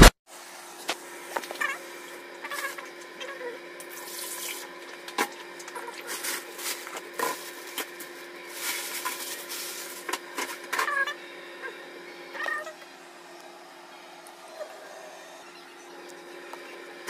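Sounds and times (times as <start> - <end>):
plastic bag rustling: 5.8 - 10.6.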